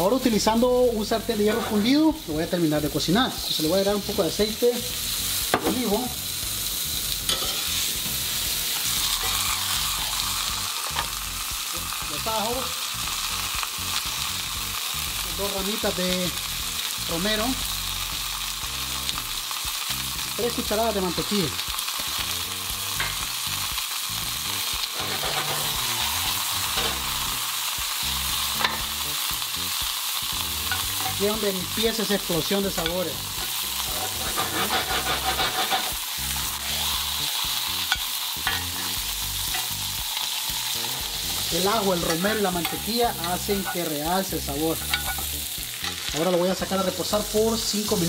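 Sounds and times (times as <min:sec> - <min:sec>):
steak sizzling in skillet: 0:00.0 - 0:48.0.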